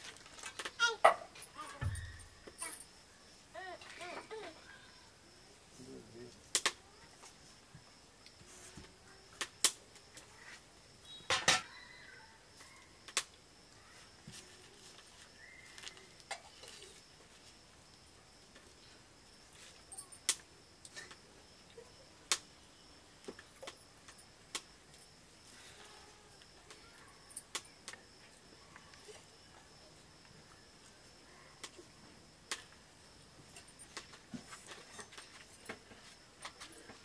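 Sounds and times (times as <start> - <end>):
metal plates and cups clinking: 11.3 - 11.7.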